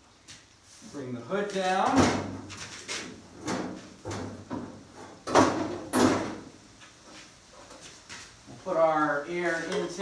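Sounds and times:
sheet metal hood clunking: 1.8 - 2.5, 3.3 - 6.5.

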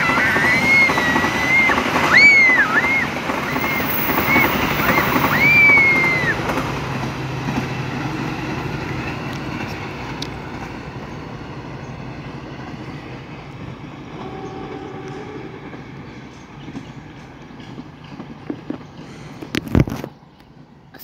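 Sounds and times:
train wheels squealing: 0.0 - 6.9
train carriages rumbling on rails: 0.0 - 21.0.

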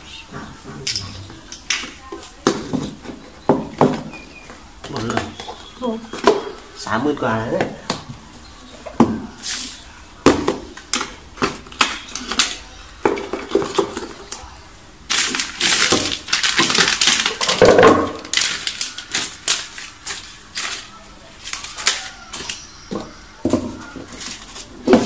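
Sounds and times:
rustling of thin wrapping sheet: 15.1 - 17.6, 18.2 - 22.7.

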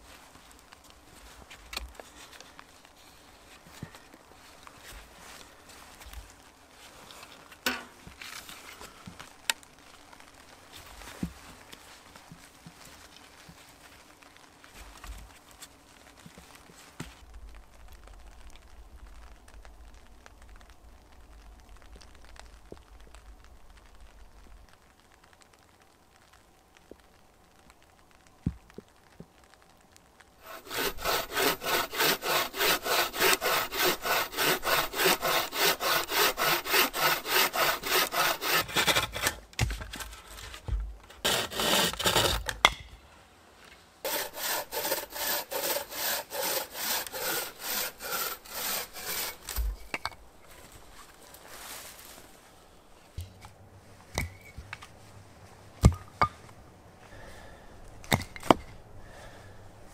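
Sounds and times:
bucksaw cutting log: 30.4 - 42.8, 44.1 - 49.8.

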